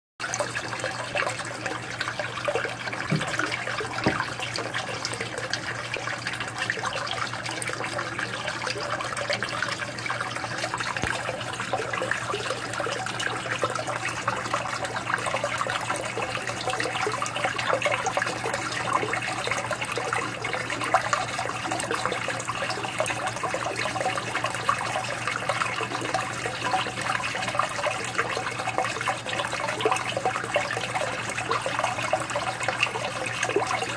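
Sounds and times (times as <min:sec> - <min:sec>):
water trickling and splashing: 0:00.2 - 0:33.9.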